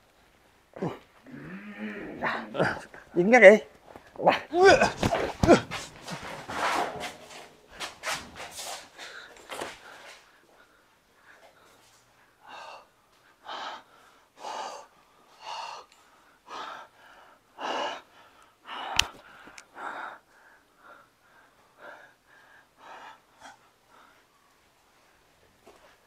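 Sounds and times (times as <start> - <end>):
person breathing heavily: 8.7 - 24.4.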